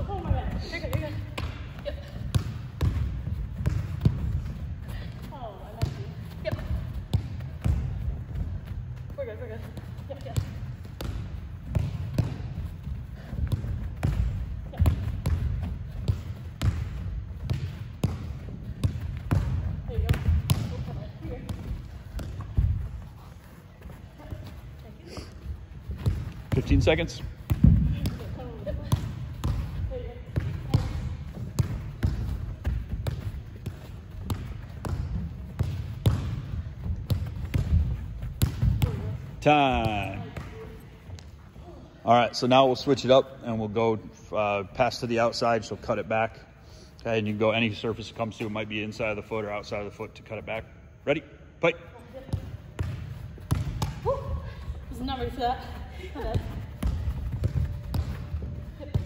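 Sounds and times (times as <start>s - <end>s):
soccer ball kicks on turf: 0.0s - 41.3s, 52.2s - 59.0s
foot kicking ball: 25.8s - 40.6s, 52.3s - 59.0s.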